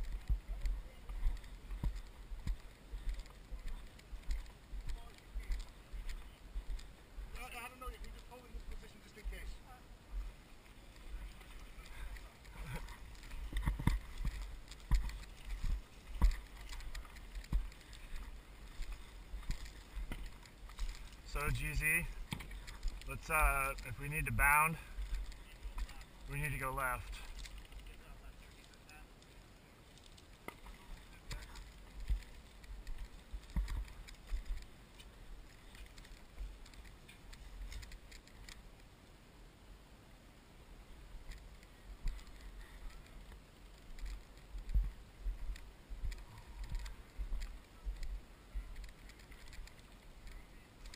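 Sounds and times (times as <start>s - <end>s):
footsteps on dirt and grass: 0.0s - 38.4s, 41.4s - 50.9s
gear rattling: 10.9s - 28.0s
wind rumble on microphone: 41.2s - 49.5s.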